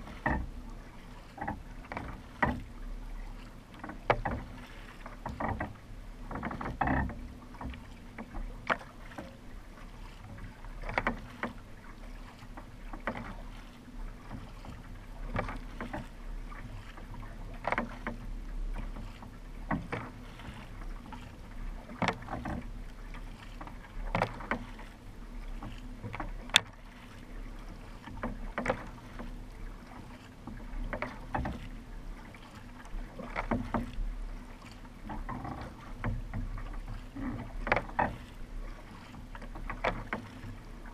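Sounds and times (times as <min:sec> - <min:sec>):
paddle splashing into water: 0:00.0 - 0:40.9.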